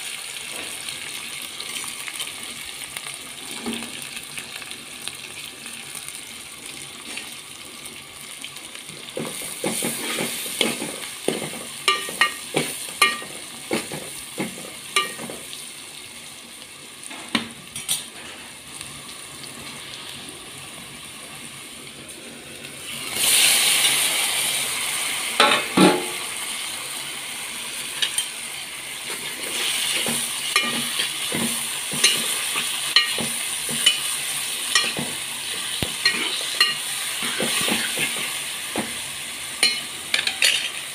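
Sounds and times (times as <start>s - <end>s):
onions sizzling in hot oil: 0.0s - 40.9s
ladle clinking and scraping pan: 9.6s - 15.4s, 29.2s - 35.2s, 36.0s - 38.3s, 39.6s - 40.9s.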